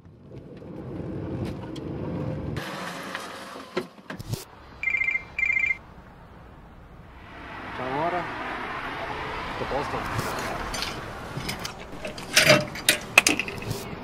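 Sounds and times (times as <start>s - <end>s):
rush of noise: 4.5s - 11.2s
mobile phone ringtone: 4.8s - 5.8s.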